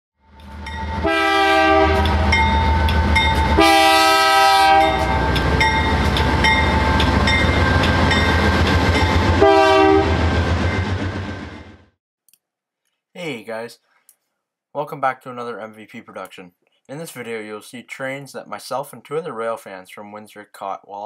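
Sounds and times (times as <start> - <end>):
freight train rumble: 0.4 - 11.9
locomotive air horn: 0.8 - 7.0, 9.2 - 10.3.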